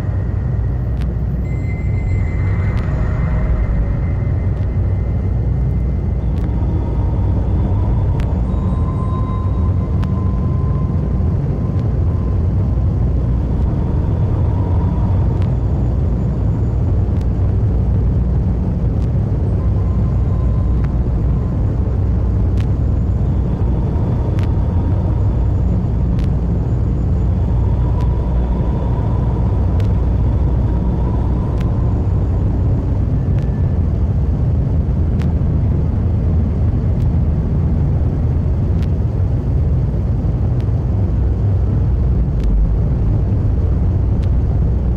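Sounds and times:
wavering tones: 0.0 - 16.8
noise music low rumble: 0.0 - 44.9.

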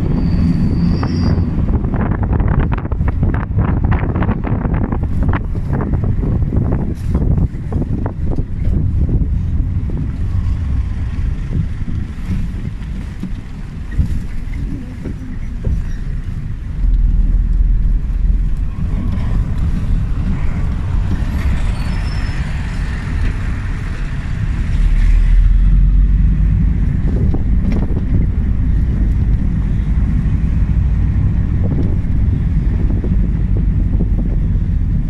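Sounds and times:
vehicle engine and road rumble: 0.0 - 35.0.

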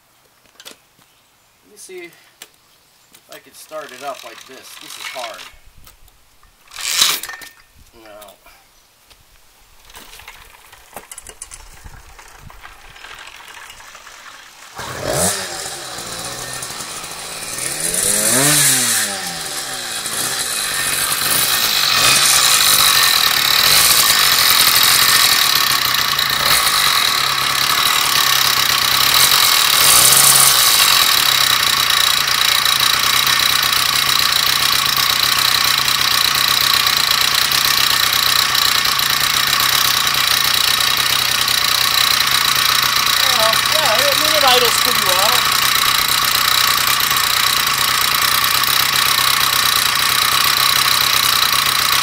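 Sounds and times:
two-stroke engine revving: 12.9 - 52.0.

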